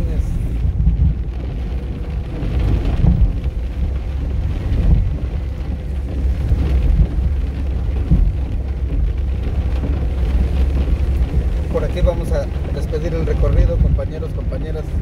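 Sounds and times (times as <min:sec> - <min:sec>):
road and wind noise: 0:00.0 - 0:15.0
vehicle driving rumble: 0:00.0 - 0:15.0.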